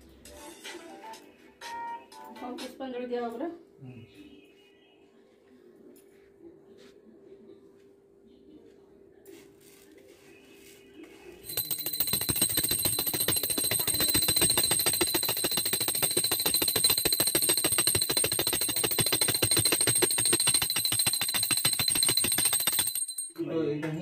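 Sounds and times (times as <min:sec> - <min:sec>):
hand bell rung rapidly: 0:11.5 - 0:23.4.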